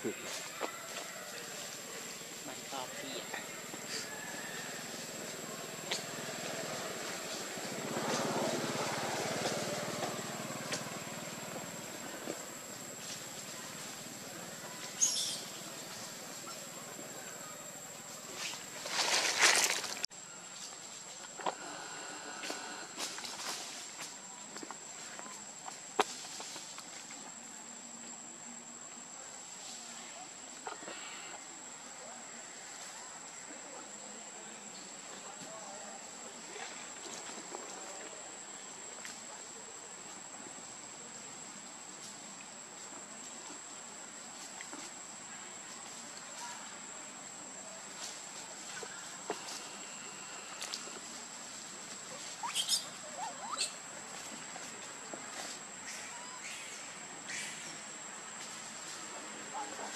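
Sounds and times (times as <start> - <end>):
insects droning: 0.0 - 59.9
baby monkeys squeaking: 52.4 - 53.8.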